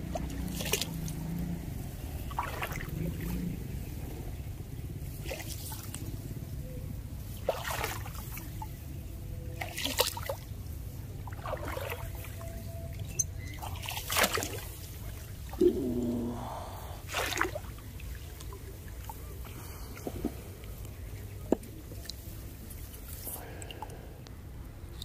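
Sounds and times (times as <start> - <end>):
shallow water splashing: 0.0 - 4.4, 5.0 - 6.3, 7.2 - 24.1
steady low rumble: 14.9 - 25.0.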